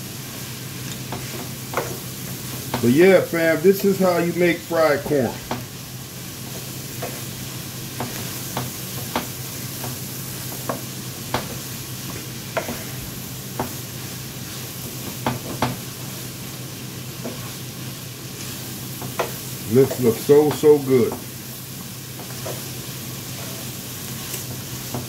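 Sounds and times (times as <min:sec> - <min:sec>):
corn sizzling in a skillet: 0:00.0 - 0:25.0
wooden spatula scraping pan: 0:12.6 - 0:13.0.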